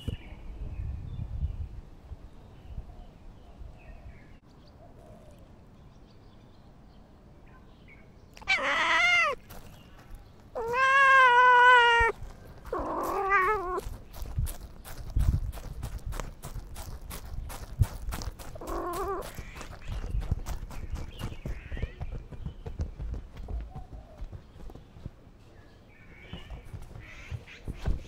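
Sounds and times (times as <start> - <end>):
cat meowing: 8.4 - 9.4, 10.6 - 13.8, 18.6 - 19.4.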